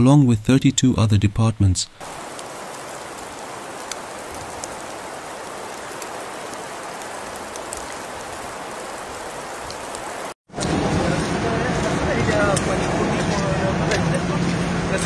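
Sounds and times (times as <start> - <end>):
hiss of wet snow falling: 2.0 - 10.4.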